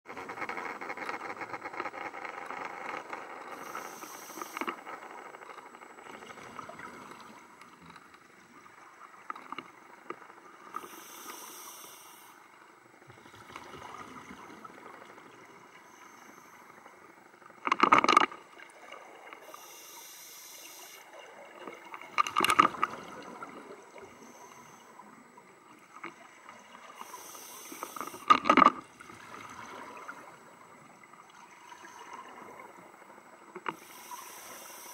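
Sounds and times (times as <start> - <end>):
regulator hiss on inhalation: 3.5 - 4.8, 10.8 - 12.4, 19.4 - 21.1, 27.0 - 28.4, 33.7 - 34.9.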